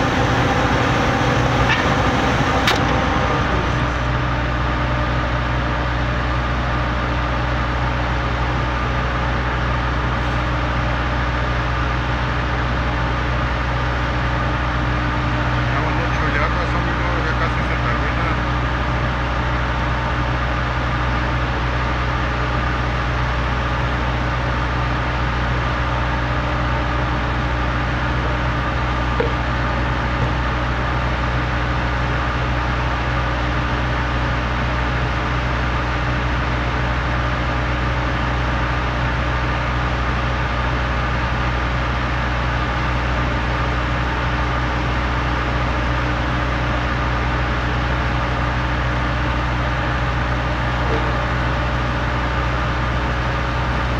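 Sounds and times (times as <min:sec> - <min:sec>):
concrete mixer truck engine: 0:00.0 - 0:53.9
concrete pump engine: 0:00.0 - 0:53.9
brief click: 0:02.6 - 0:03.0.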